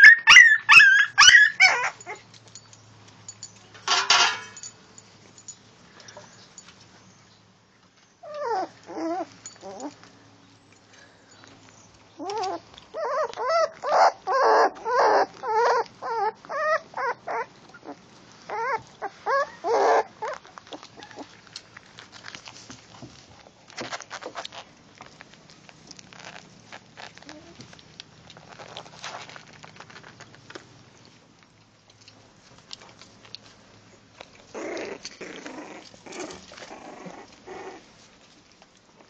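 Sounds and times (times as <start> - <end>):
puppy whimpering and yelping: 0.0 - 2.3, 8.2 - 10.0, 12.2 - 21.4, 34.5 - 37.9.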